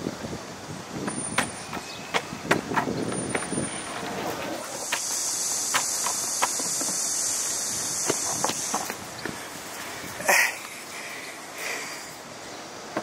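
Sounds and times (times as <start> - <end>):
skateboard wheels rolling on stone: 0.0 - 10.2
skateboard wheels clacking on joints: 0.9 - 7.2, 7.9 - 9.4
high insect buzz: 4.6 - 9.1.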